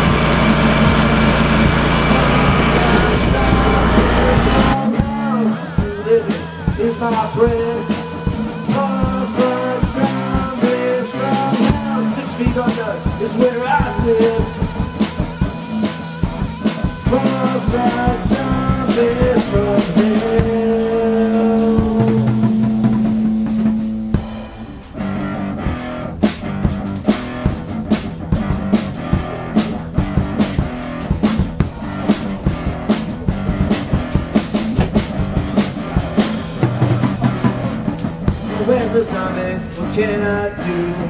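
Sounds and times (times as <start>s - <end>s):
steady drum beat: 0.0s - 40.0s
held guitar notes: 0.0s - 41.0s.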